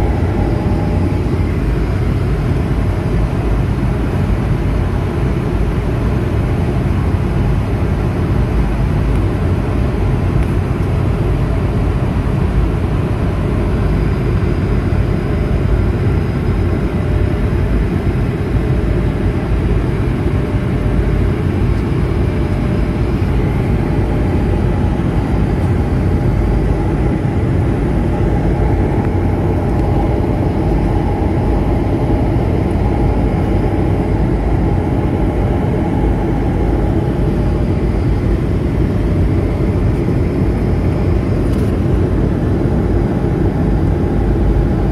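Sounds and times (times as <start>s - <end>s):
faint steady hum: 0.0s - 44.9s
jet engine rumble in cabin: 0.0s - 44.9s.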